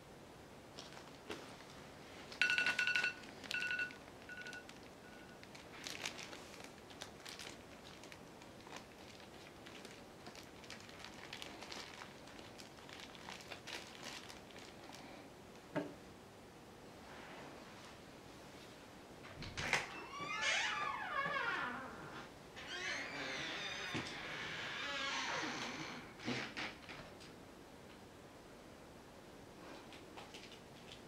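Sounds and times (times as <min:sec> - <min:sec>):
plastic bag crinkling: 0:00.8 - 0:15.2
phone timer alarm beeps: 0:02.4 - 0:05.4.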